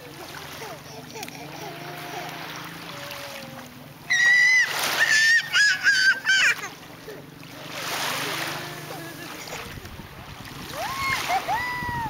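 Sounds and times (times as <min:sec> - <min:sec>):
child squealing: 0:04.1 - 0:06.8, 0:10.8 - 0:12.0.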